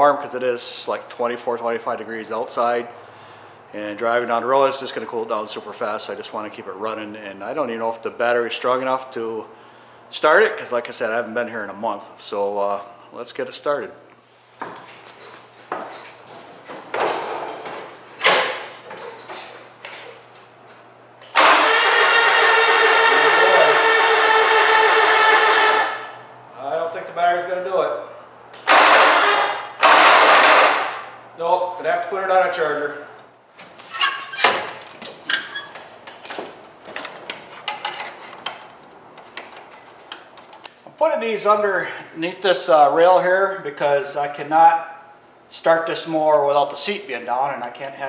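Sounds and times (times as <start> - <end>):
knocks and rustles: 14.6 - 20.4
electric starter cranking engine: 21.2 - 26.2, 28.6 - 31.0.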